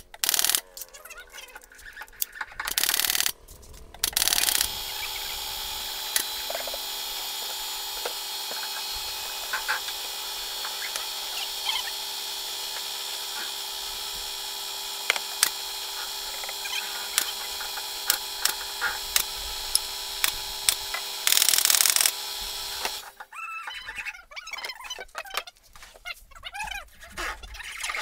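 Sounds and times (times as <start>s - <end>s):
nail gun firing: 0.0s - 0.8s, 2.6s - 3.4s, 4.0s - 23.1s
steady machine hum: 0.0s - 23.2s.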